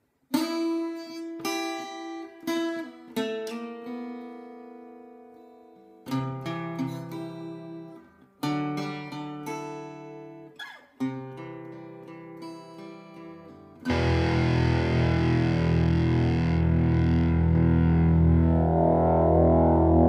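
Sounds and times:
acoustic guitar chords: 6.1 - 20.0
heavy rock band playing: 13.9 - 17.5.

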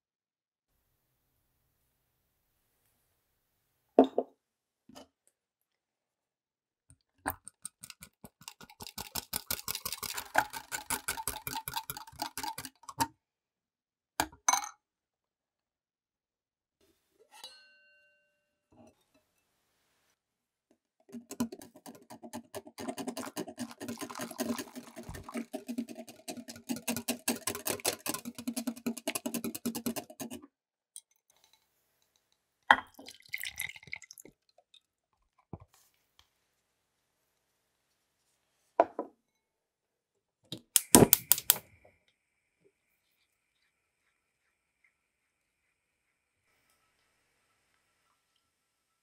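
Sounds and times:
whisk beating in glass bowl: 7.5 - 13.0, 21.1 - 30.4.

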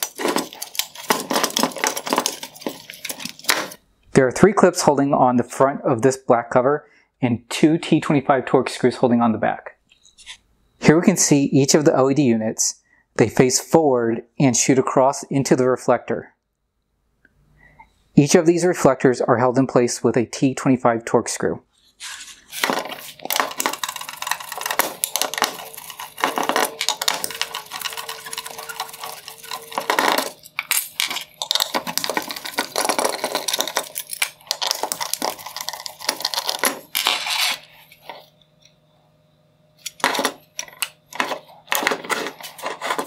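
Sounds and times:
metal parts clinking: 0.0 - 3.8, 22.5 - 38.2, 39.8 - 43.0.

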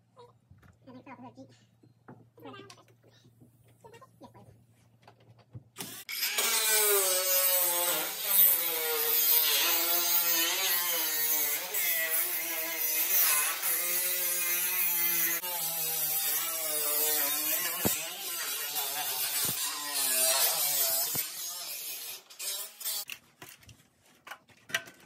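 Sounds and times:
angle grinder cutting metal: 5.8 - 23.1.

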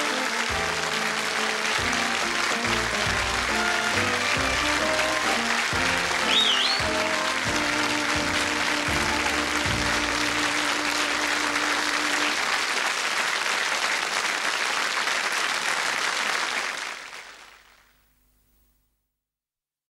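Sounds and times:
theme music: 0.0 - 12.5
audience applauding: 0.0 - 17.9.

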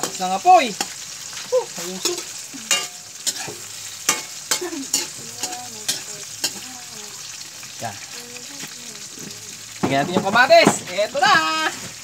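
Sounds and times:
metal spatula scraping wok: 0.0 - 8.1
food sizzling in wok: 0.0 - 12.0.

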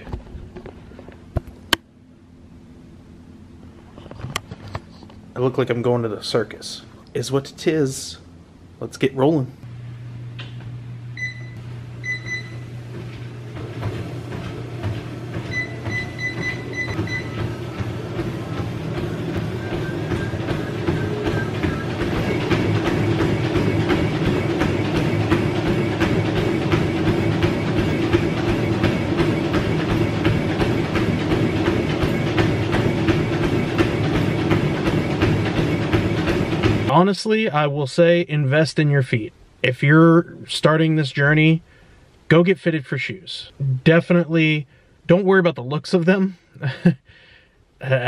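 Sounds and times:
treadmill motor and belt hum: 0.0 - 38.4, 45.9 - 48.0
footfalls on treadmill belt: 12.0 - 37.0
console beeps: 15.5 - 17.4.

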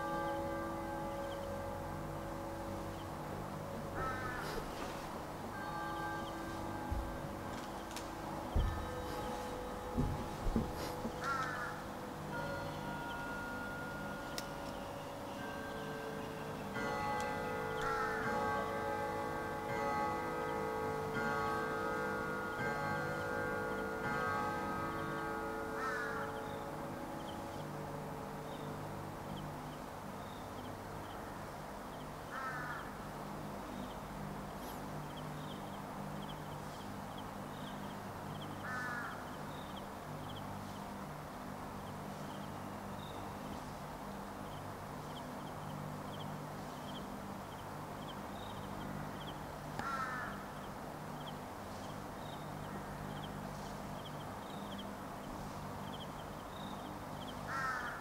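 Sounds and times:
steady low hum: 0.0 - 58.0
crow cawing: 4.0 - 4.8, 11.0 - 11.8, 25.6 - 26.8, 32.3 - 33.0, 38.6 - 39.4, 49.8 - 50.6, 57.4 - 58.0.

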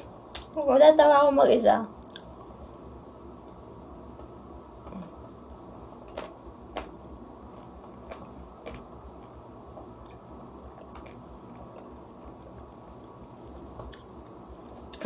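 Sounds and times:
low background noise: 0.0 - 15.0
ice cream bar being bitten: 6.0 - 15.0.

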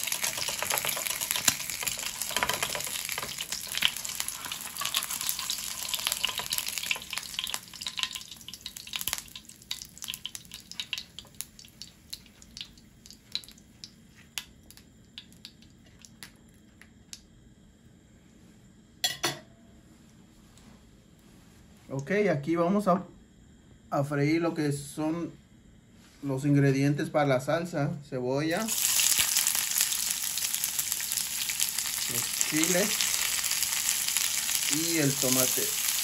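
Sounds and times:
egg sizzling in frying pan: 0.0 - 16.2, 28.7 - 36.0
oil popping and crackling: 0.0 - 17.2, 28.7 - 36.0.

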